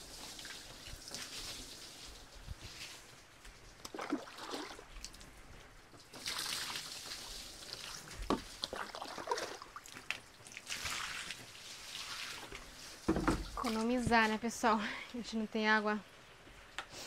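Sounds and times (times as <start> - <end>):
water splashing in a bucket: 0.0 - 3.0, 3.8 - 14.3
bucket knocking: 13.0 - 14.2.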